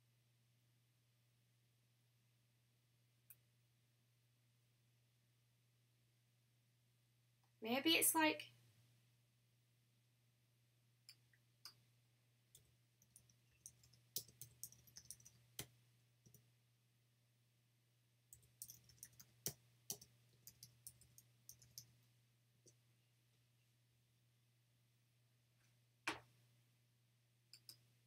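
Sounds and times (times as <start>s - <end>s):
computer keyboard typing: 12.6s - 15.7s, 18.3s - 21.9s.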